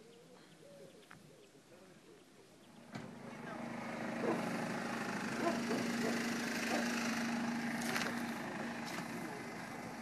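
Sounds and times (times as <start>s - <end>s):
outdoor background noise: 0.0s - 10.0s
motor humming: 2.7s - 10.0s.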